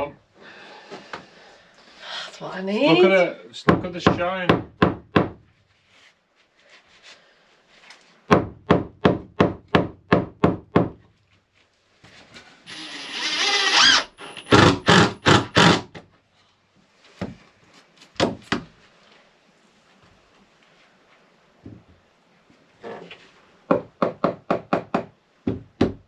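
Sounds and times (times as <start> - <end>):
cordless drill whirring: 12.7 - 15.8.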